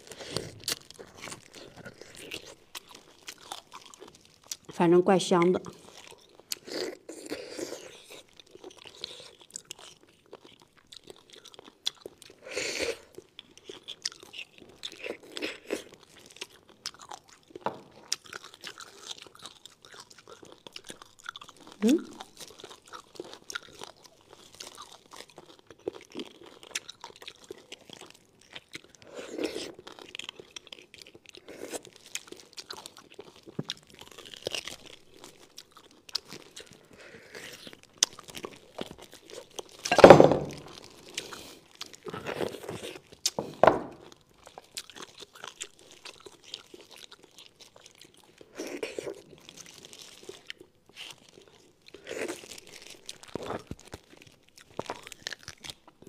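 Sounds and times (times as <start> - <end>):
person sucking and chewing: 0.0 - 4.8, 5.7 - 56.0.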